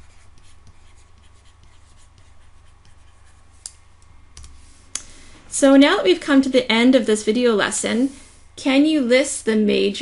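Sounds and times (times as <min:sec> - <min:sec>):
pen scratching on tablet: 0:00.0 - 0:03.4
low electrical hum: 0:00.0 - 0:10.0.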